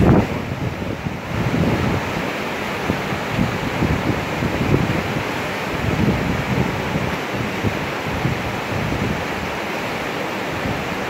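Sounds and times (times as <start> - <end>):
wind buffeting microphone: 0.0 - 9.7, 10.4 - 11.0
river rapids rushing: 0.0 - 11.0.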